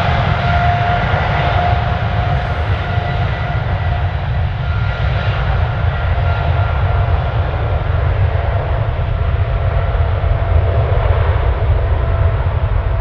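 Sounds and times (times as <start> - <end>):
jet engine whine: 0.0 - 13.0
jet engines rumbling: 0.0 - 13.0.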